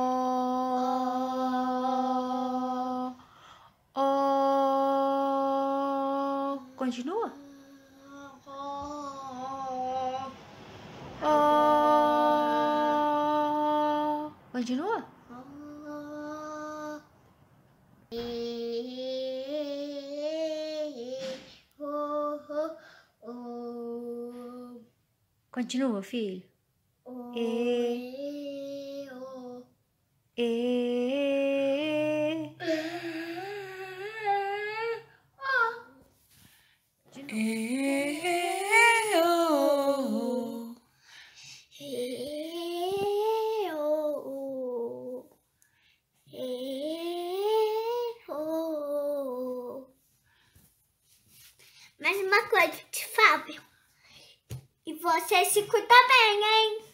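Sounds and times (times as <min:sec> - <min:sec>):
girl singing sliding tones: 0:00.0 - 0:03.3, 0:03.9 - 0:17.4, 0:18.1 - 0:24.9, 0:27.1 - 0:29.7, 0:30.3 - 0:45.4, 0:46.2 - 0:50.1
breath: 0:03.2 - 0:03.8, 0:22.8 - 0:23.2, 0:36.3 - 0:37.0, 0:40.9 - 0:41.7, 0:45.6 - 0:46.1, 0:50.2 - 0:52.0, 0:53.7 - 0:54.5
boy singing held notes: 0:37.1 - 0:40.8.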